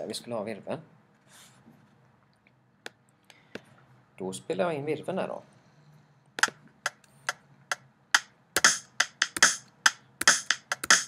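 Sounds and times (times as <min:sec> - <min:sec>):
metronome clicking: 0:08.2 - 0:11.0
snare drum hits: 0:08.6 - 0:11.0.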